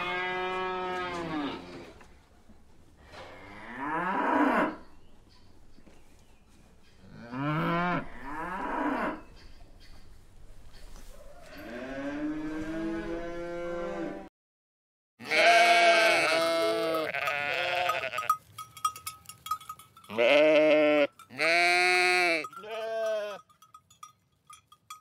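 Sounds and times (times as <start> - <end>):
sheep bleating: 15.2 - 18.3, 20.1 - 23.4
small bell ringing faintly: 16.4 - 25.0.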